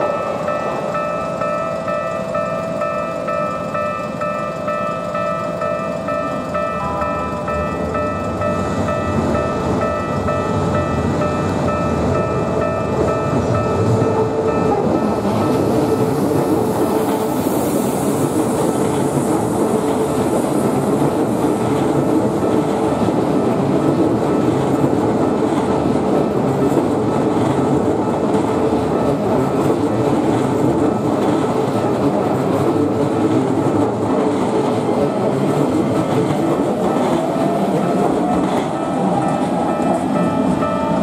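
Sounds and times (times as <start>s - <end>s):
crossing warning bell ringing: 0.0s - 41.0s
electric train passing: 0.0s - 41.0s
wheels clacking over rail joints: 18.1s - 41.0s.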